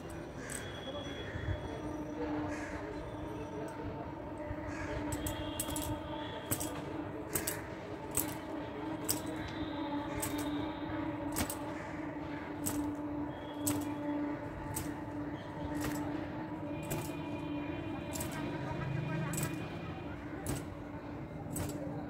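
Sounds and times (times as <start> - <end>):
bangles clinking: 5.1 - 11.8, 12.6 - 18.5, 19.3 - 19.8, 20.4 - 20.8, 21.5 - 21.9.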